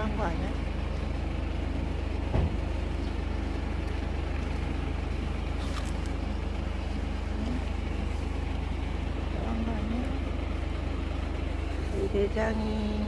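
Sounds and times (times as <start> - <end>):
vehicle engine idling: 0.0 - 13.0
thump: 2.3 - 2.6.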